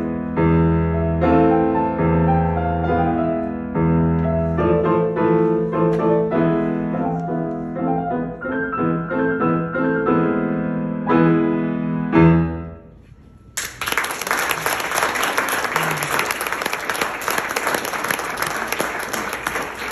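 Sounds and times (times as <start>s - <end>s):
grand piano chords: 0.0s - 13.7s
audience applause: 13.6s - 19.9s.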